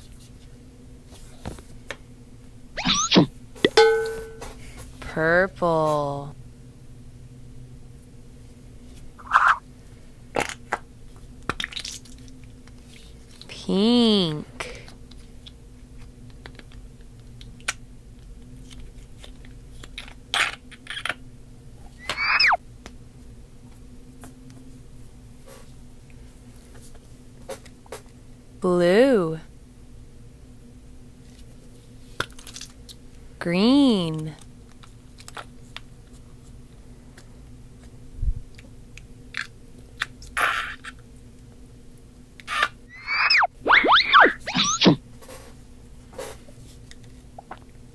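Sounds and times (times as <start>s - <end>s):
faint steady hum: 0.0s - 47.9s
stress ball squelching: 42.9s - 45.0s.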